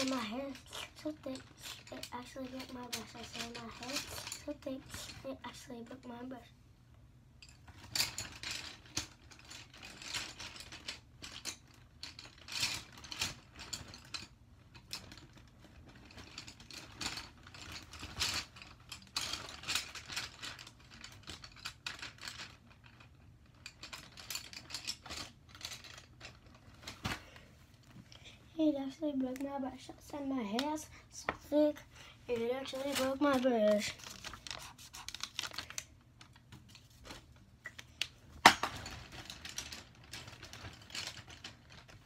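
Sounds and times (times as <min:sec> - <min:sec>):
small hard objects clicking and rattling: 0:37.6 - 0:42.0.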